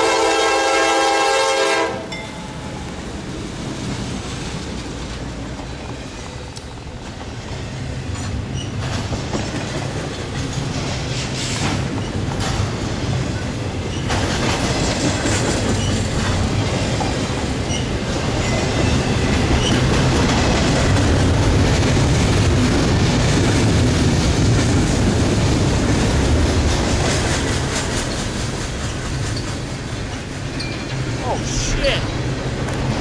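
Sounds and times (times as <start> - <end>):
train wheels rumbling on rail: 0.0 - 31.2, 32.0 - 33.0
wheels clicking over rail joints: 8.1 - 31.2.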